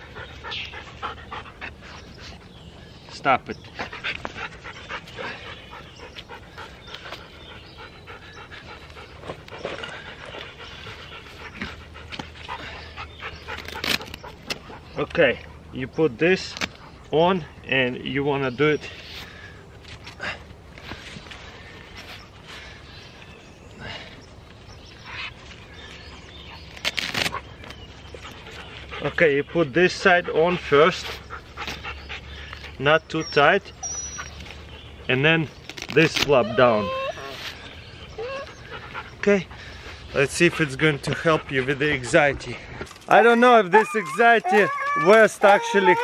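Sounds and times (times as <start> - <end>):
dogs panting: 0.0 - 26.8, 27.4 - 46.0
hook-and-loop strap tearing: 13.5 - 14.6, 26.7 - 27.4, 35.7 - 36.4.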